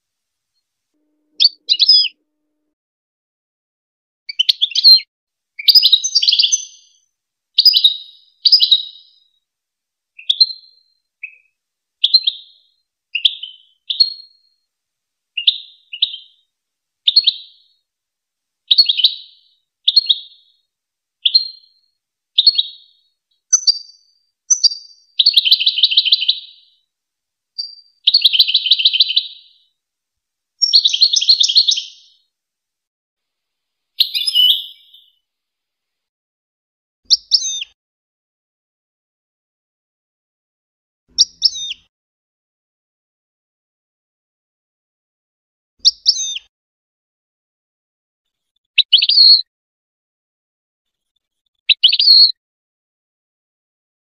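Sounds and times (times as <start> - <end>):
goldfinch singing: 1.4 - 2.2, 4.3 - 5.0, 5.6 - 7.0, 7.6 - 9.2, 10.2 - 14.4, 15.4 - 16.4, 17.1 - 17.7, 18.7 - 20.5, 21.2 - 21.7, 27.6 - 29.6, 30.6 - 32.2, 34.0 - 35.1, 41.2 - 41.8.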